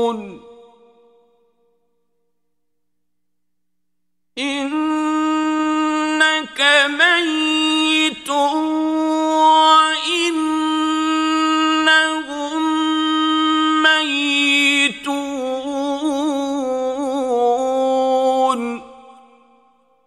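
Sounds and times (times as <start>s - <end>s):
man chanting melodically: 0.0s - 1.3s, 4.4s - 19.6s.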